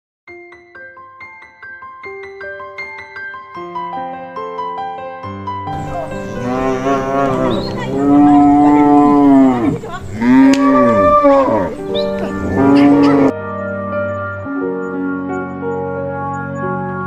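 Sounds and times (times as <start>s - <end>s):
soft piano music: 0.3s - 17.0s
cow mooing: 5.7s - 13.3s.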